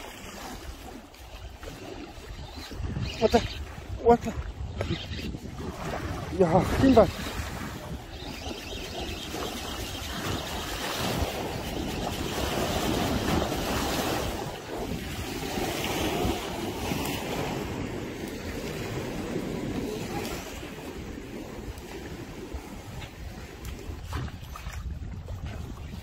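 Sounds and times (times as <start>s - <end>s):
waves washing against seawall: 0.0s - 26.0s
wind buffeting microphone: 0.0s - 26.0s.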